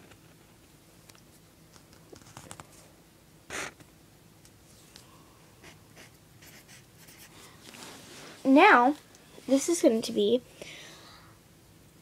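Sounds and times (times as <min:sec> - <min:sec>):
pencil scratching on paper: 0:05.6 - 0:07.4.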